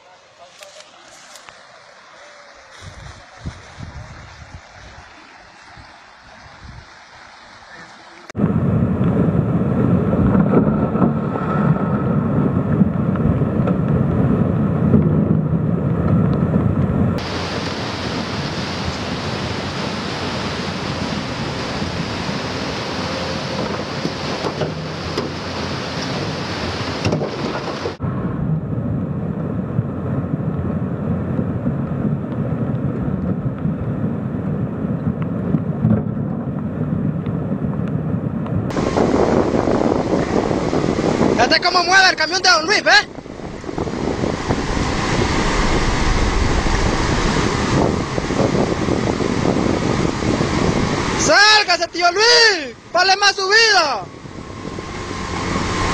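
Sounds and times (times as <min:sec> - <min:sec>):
flood river rushing: 0:00.0 - 0:13.6, 0:17.2 - 0:28.0, 0:38.7 - 0:55.9.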